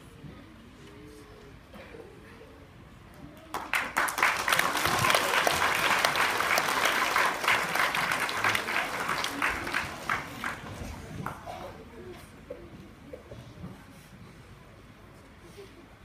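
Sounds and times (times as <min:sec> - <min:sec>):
children applauding: 0:03.5 - 0:11.4.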